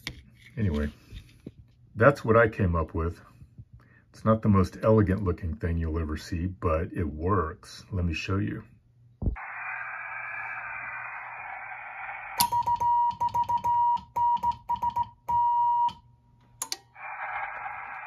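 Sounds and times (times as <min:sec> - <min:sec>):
receiver hiss: 0:09.2 - 0:12.8, 0:16.9 - 0:18.0.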